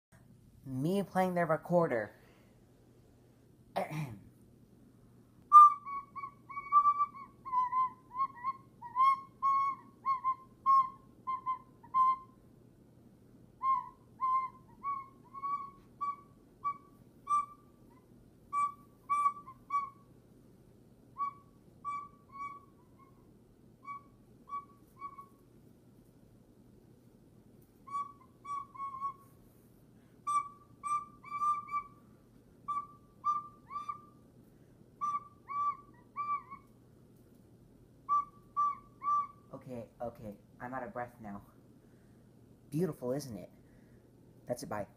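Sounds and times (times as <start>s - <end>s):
recorder playing short high notes: 5.5s - 12.3s, 21.2s - 23.2s.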